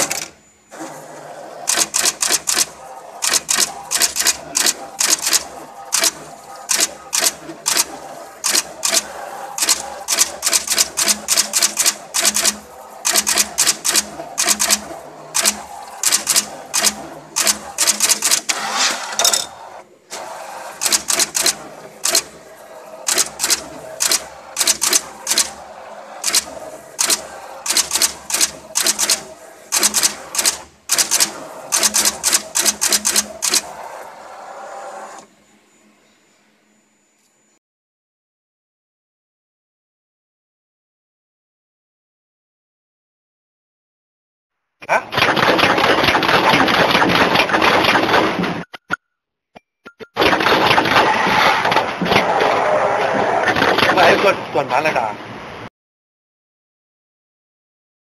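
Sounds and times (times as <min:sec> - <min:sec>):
sharp mechanical clacks: 0:00.0 - 0:00.4, 0:01.6 - 0:19.6, 0:20.8 - 0:22.4, 0:23.0 - 0:25.6, 0:26.2 - 0:33.8, 0:44.9 - 0:49.0, 0:49.9 - 0:54.4.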